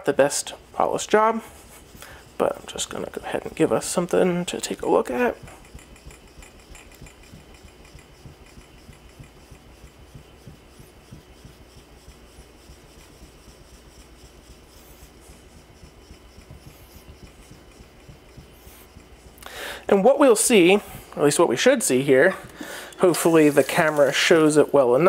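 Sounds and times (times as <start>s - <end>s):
knife scraping on whetstone: 0.3s - 21.3s, 22.0s - 24.6s.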